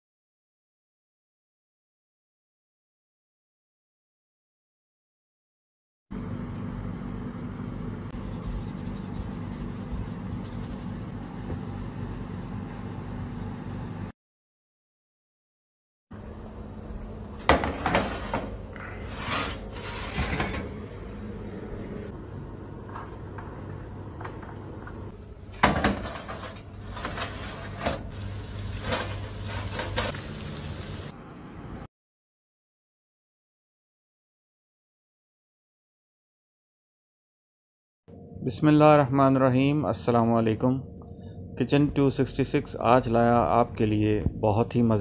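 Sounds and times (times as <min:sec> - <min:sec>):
steady low hum: 0:06.2 - 0:14.1, 0:16.2 - 0:29.0, 0:38.1 - 0:45.0
hands rubbing salt into meat: 0:08.2 - 0:11.1.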